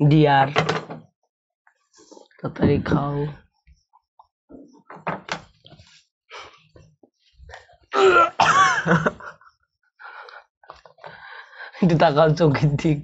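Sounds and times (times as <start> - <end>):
boy coughing and gagging: 8.0 - 9.3.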